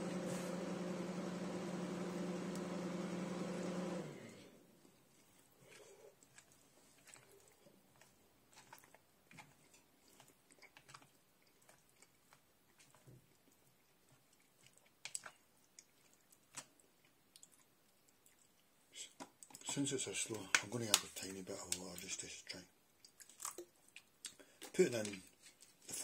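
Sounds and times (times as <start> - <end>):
faint chewing: 4.6 - 26.0.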